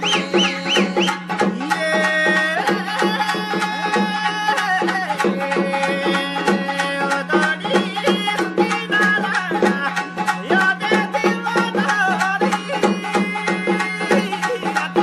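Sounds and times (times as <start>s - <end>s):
percussion beat: 0.0s - 15.0s
wavering melody: 0.0s - 15.0s.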